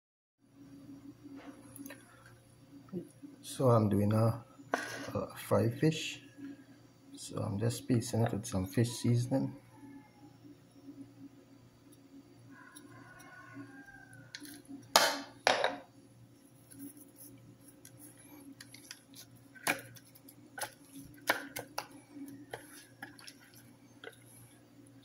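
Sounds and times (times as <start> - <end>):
faint steady low hum: 0.4 - 25.0
hands scraping fish on plate: 16.6 - 24.3.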